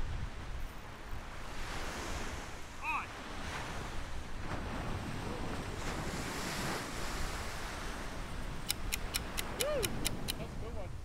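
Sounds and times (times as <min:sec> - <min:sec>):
wind buffeting microphone: 0:00.0 - 0:11.0
surf breaking on beach: 0:01.2 - 0:10.8
sharp evenly spaced clicks: 0:08.6 - 0:10.4.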